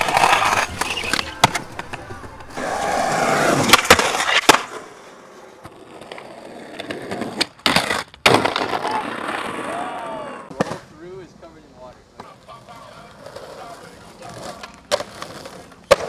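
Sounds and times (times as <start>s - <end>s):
skateboard clacking on concrete: 0.0s - 4.8s, 12.2s - 16.0s
skateboard trucks grinding concrete: 0.0s - 16.0s.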